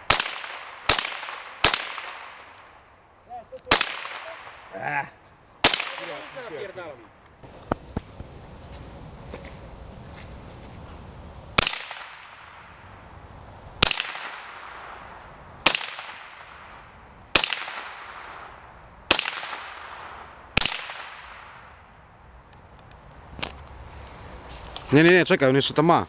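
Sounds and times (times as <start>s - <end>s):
rifle shots echoing: 0.0s - 2.8s, 3.7s - 4.8s, 5.6s - 6.8s, 11.6s - 12.8s, 13.8s - 21.9s.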